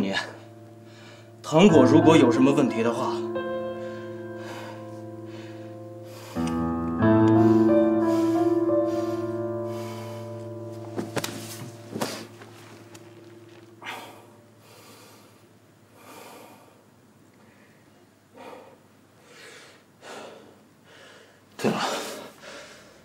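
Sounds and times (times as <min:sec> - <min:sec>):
background music chords: 0:00.0 - 0:15.2
man breathing heavily: 0:00.8 - 0:01.4, 0:03.7 - 0:10.9, 0:13.8 - 0:16.9, 0:18.3 - 0:23.0.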